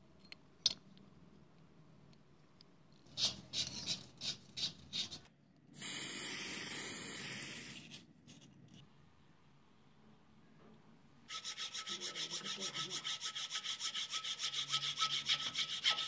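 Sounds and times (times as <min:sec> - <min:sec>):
spray paint hiss: 0:05.8 - 0:08.0.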